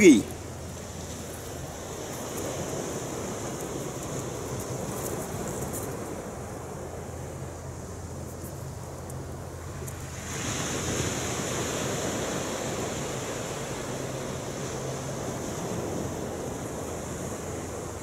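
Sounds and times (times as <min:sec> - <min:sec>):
surf washing up shingle beach: 0:00.0 - 0:18.0.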